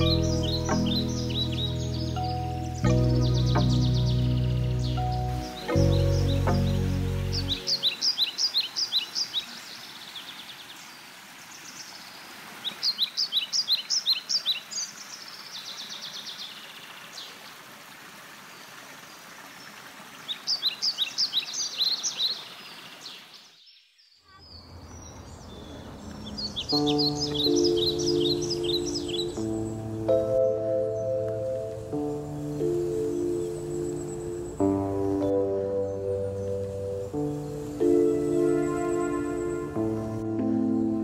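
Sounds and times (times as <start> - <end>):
songbird singing: 0.0 - 17.6, 18.4 - 41.0
woodland ambience hiss: 0.0 - 41.0.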